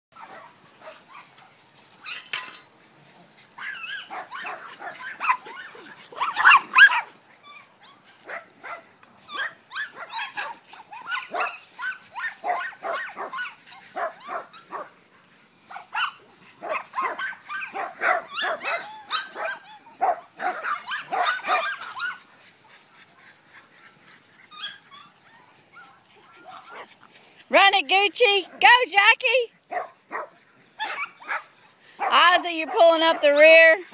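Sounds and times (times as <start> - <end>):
dogs barking and yipping: 0.2 - 33.9.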